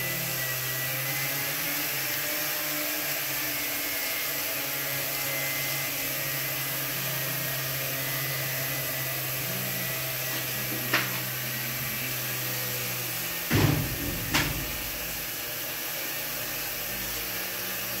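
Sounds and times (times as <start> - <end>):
knocks: 13.5 - 15.1
low machine hum: 13.5 - 15.5.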